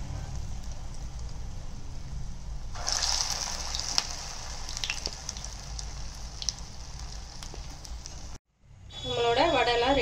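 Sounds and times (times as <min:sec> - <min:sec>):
food sizzling in oil: 0:02.7 - 0:08.4.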